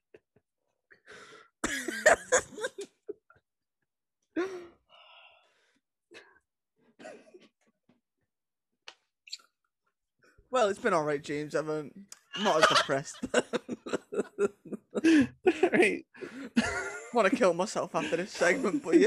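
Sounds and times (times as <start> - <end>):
men's stifled laughter: 1.6 - 3.3, 12.4 - 16.0.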